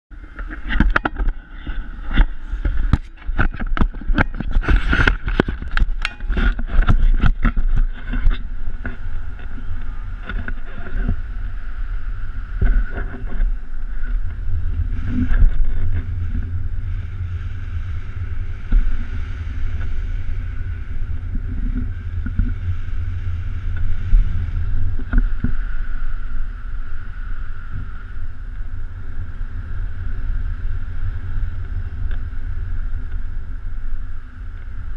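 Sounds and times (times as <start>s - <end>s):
wind buffeting microphone: 0.1s - 34.9s
knocks and crackles: 0.2s - 11.4s, 12.5s - 26.2s.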